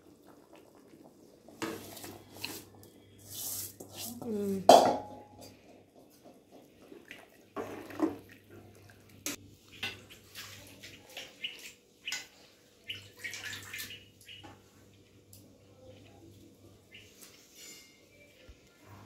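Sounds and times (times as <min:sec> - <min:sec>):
metal spoon stirring in pot: 0:17.3 - 0:18.2.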